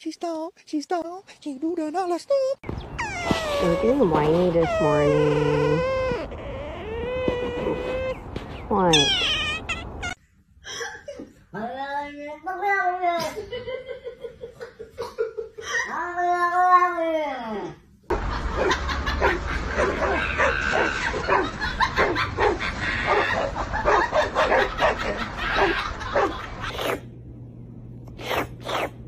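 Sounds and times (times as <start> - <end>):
cat yowling: 3.0 - 8.2, 8.9 - 10.2.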